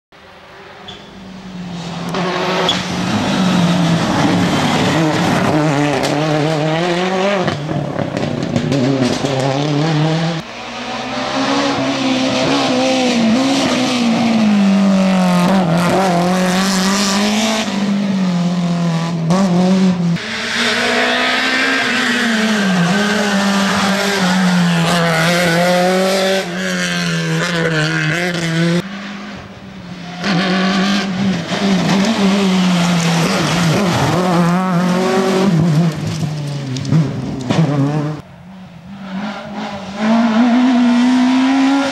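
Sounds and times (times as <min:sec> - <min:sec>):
rally car engines revving: 0:00.6 - 0:41.9
tyre squeal: 0:00.8 - 0:01.3.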